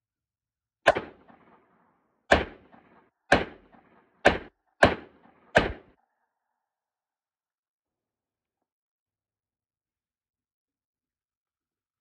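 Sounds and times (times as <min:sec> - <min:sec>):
revolver gunshots with echo: 0:00.8 - 0:06.0.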